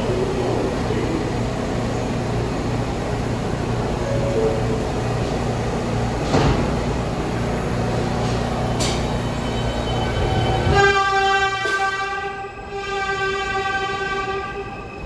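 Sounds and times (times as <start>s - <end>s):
subway train rumbling: 0.0s - 15.0s
train horn blast: 10.6s - 14.8s.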